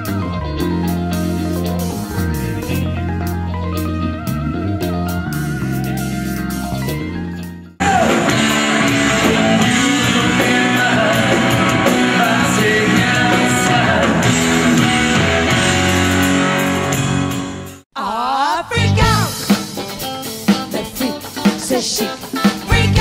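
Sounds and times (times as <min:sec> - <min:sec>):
guitar music: 0:00.0 - 0:17.8, 0:18.7 - 0:23.0
live rock band playing: 0:00.0 - 0:17.9, 0:18.5 - 0:23.0
lead singer singing: 0:07.8 - 0:14.8, 0:18.0 - 0:19.6, 0:20.5 - 0:23.0.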